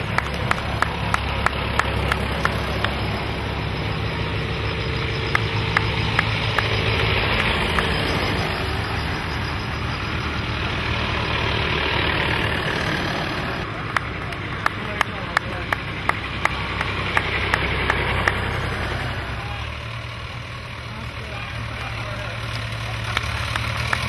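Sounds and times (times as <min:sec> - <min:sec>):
sharp regular clicks: 0:00.0 - 0:09.5
tractor engines driving past: 0:00.0 - 0:24.0.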